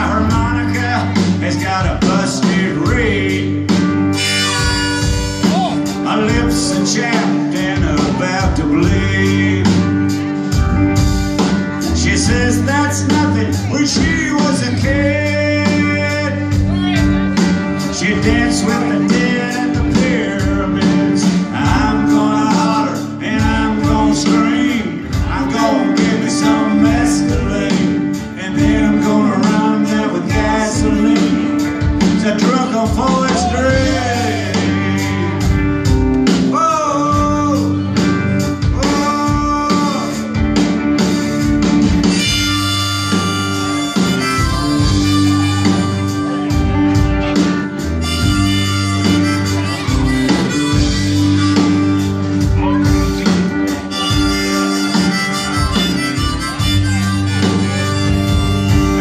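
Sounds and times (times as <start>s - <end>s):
drum kit beat: 0.0s - 59.0s
guitar: 0.0s - 59.0s
man singing: 0.0s - 59.0s.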